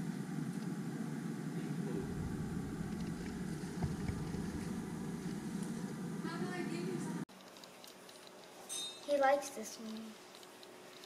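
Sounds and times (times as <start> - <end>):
low rumbling background noise: 0.0 - 7.3
deeper rumble: 1.8 - 6.3.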